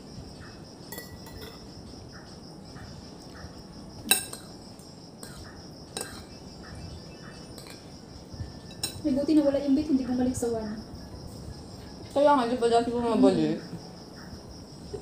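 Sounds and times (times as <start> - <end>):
metal spoon clinking on plate: 0.9 - 1.7, 4.1 - 4.5, 7.6 - 7.9, 8.7 - 9.0.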